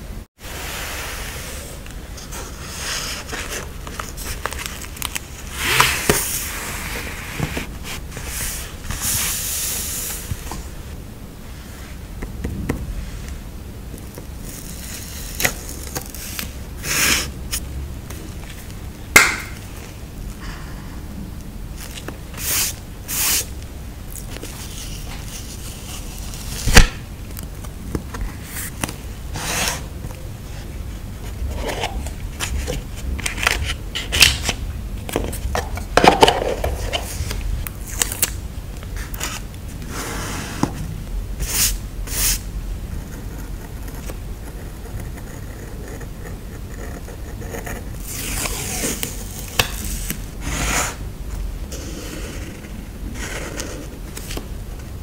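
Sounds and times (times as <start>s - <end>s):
paper rustling and sliding: 0.5s - 10.7s.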